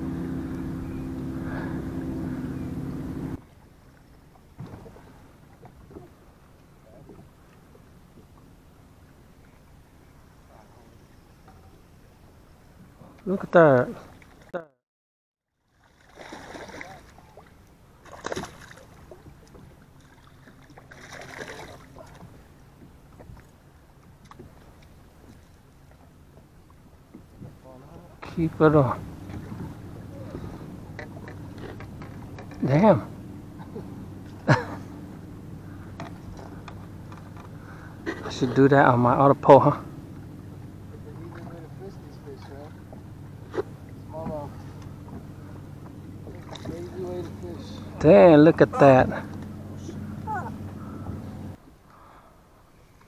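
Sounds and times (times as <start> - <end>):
boat motor droning: 0.0 - 14.6, 15.5 - 53.0
fish splashing in water: 15.7 - 19.3, 19.9 - 22.2.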